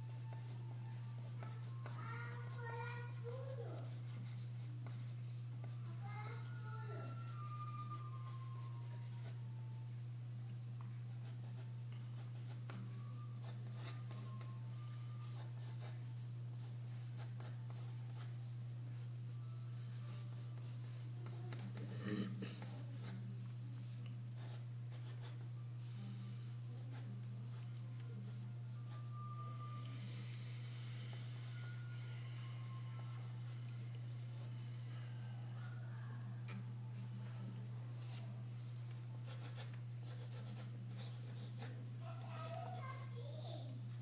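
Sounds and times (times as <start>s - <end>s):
steady low hum: 0.0s - 44.0s
pencil scratching on paper: 13.4s - 14.5s, 19.3s - 23.2s, 39.2s - 43.1s.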